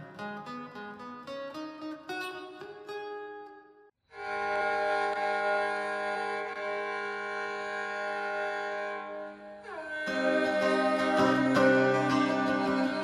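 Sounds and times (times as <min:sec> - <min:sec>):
plucked notes: 0:00.0 - 0:03.9, 0:10.1 - 0:13.0
held chord sliding in pitch: 0:04.3 - 0:13.0.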